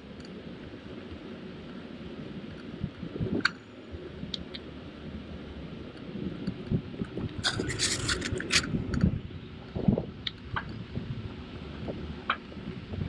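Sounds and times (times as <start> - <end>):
bicycle tyres and frame rumbling: 0.0 - 13.0
small clicks and rubbing scrapes: 6.4 - 9.1
harsh scraping rattle: 7.4 - 9.1.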